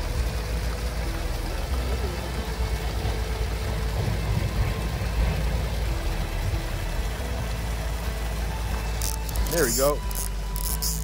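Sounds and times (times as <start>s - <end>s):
wind buffeting microphone: 3.6s - 7.6s.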